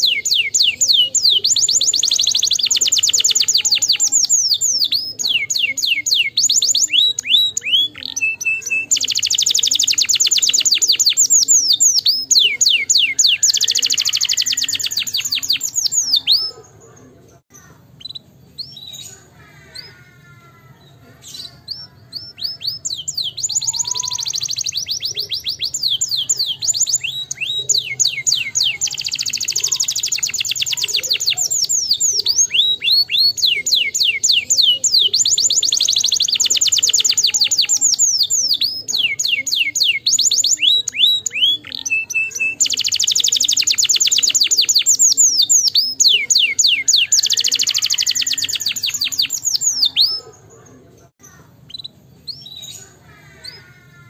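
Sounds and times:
canary singing trills: 0.0 - 54.0.

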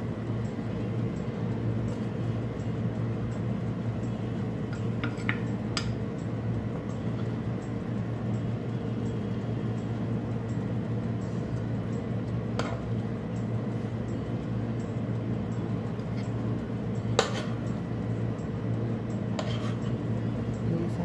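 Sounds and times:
air conditioner humming: 0.0 - 21.0.

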